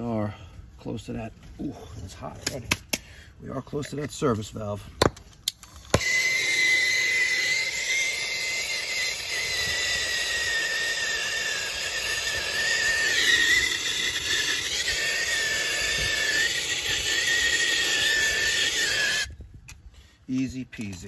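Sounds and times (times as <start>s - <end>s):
torch flame hissing and whistling: 5.6s - 19.4s.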